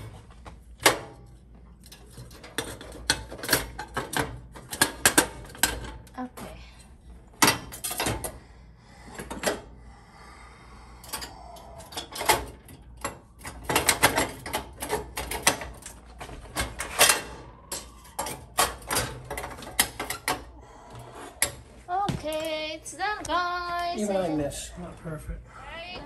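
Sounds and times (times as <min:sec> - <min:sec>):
stove parts clicking and clattering: 0:00.0 - 0:06.7, 0:07.3 - 0:08.4, 0:11.0 - 0:20.5.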